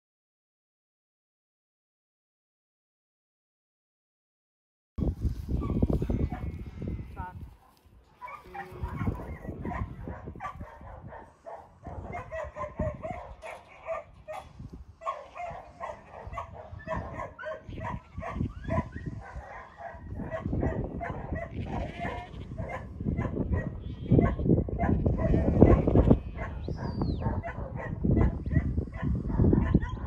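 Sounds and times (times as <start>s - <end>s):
dog barking: 5.6s - 6.5s, 7.6s - 30.0s.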